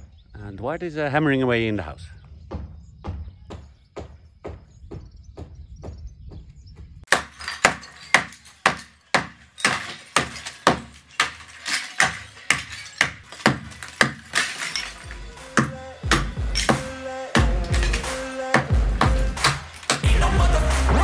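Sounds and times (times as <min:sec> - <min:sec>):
hammer striking brick wall: 0:07.1 - 0:20.1
brick rubble clattering down: 0:07.1 - 0:20.2.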